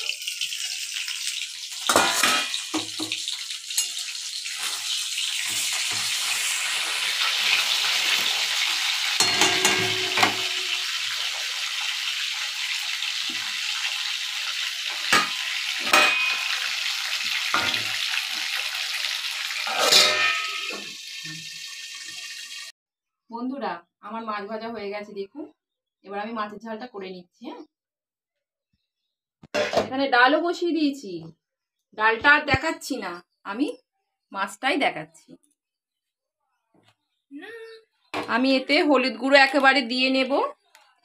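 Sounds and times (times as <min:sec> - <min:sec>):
fish sizzling in oil: 0:00.0 - 0:22.7
metal spatula clinking and scraping: 0:01.8 - 0:03.1, 0:03.7 - 0:06.5, 0:09.2 - 0:11.4, 0:14.9 - 0:16.8, 0:19.6 - 0:21.0
steel plate clank: 0:09.2 - 0:10.9, 0:15.1 - 0:16.5, 0:19.7 - 0:20.9.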